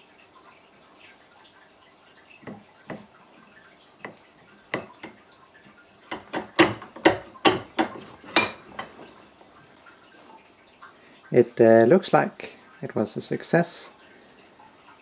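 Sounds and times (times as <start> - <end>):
vise clicks and knocks: 4.0 - 5.2, 6.1 - 9.0
metallic clink with short ring: 8.4 - 8.7.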